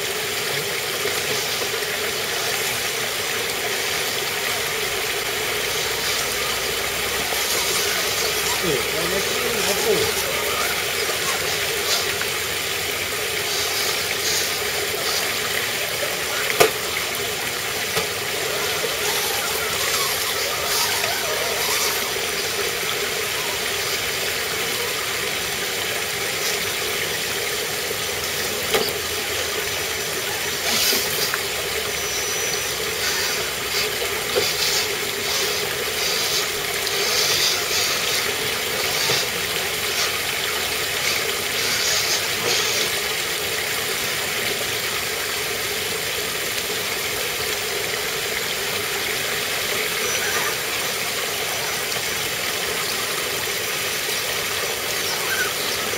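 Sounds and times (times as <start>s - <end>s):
stream flowing over rocks: 0.0s - 55.9s.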